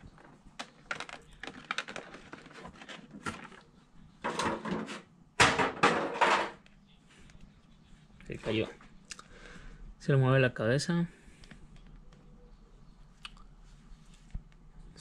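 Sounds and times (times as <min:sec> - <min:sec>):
plastic rustling: 0:00.0 - 0:04.8
plastic packaging crinkling: 0:00.1 - 0:03.7.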